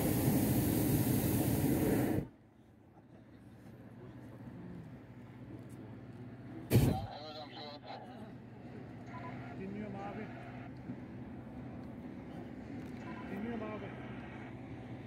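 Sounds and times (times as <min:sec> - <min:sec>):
propane burner roaring: 0:00.0 - 0:02.3.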